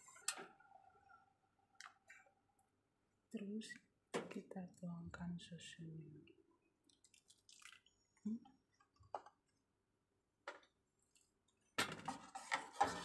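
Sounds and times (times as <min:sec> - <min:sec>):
clattering and scraping: 0:11.9 - 0:13.0.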